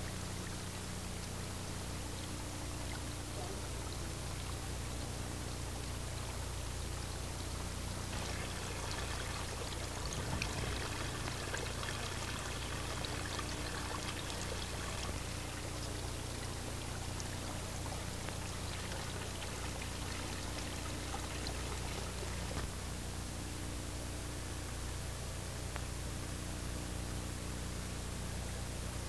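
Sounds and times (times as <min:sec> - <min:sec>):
recording hiss and hum: 0:00.0 - 0:29.0
water trickling and dripping: 0:08.1 - 0:22.7.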